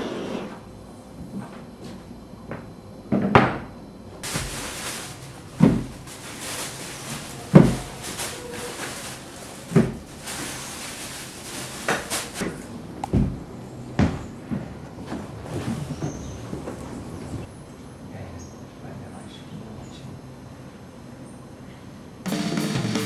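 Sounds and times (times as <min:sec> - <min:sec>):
objects knocking and thudding: 0:03.1 - 0:13.4
steady hiss: 0:04.2 - 0:12.4.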